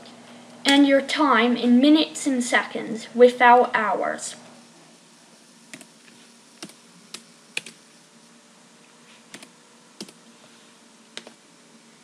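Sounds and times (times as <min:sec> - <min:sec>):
keyboard keystrokes: 0:09.3 - 0:10.2.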